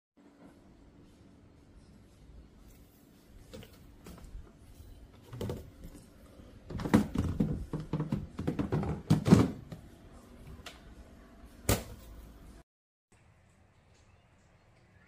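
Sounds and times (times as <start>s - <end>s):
plastic knocks and rattles: 6.7s - 9.8s.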